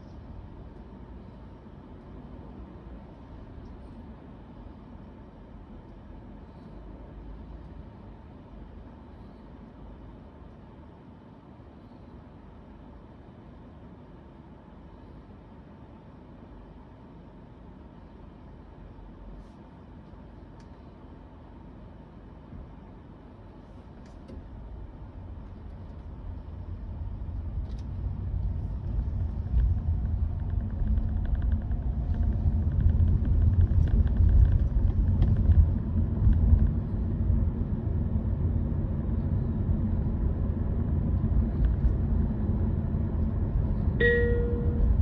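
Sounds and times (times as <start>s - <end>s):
road and tyre rumble in car: 0.0s - 45.0s
short electronic tone: 44.0s - 45.0s.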